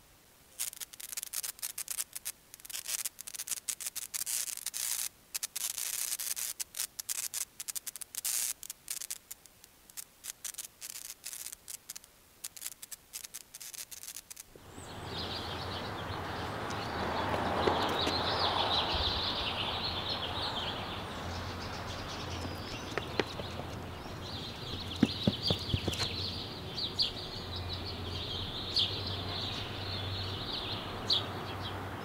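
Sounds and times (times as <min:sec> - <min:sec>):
rough scratching strokes: 0:00.6 - 0:14.5, 0:21.4 - 0:26.4
birds chirping: 0:14.6 - 0:32.0.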